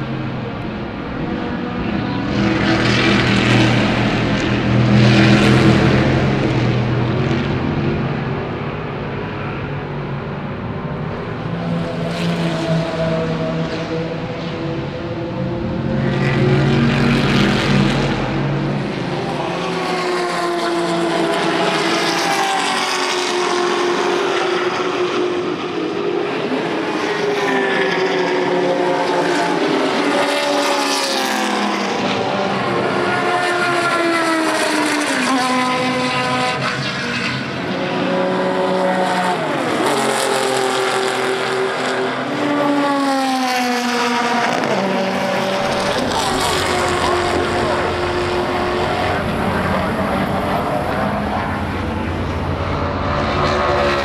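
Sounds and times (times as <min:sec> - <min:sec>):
race car engines revving: 0:00.0 - 0:54.0.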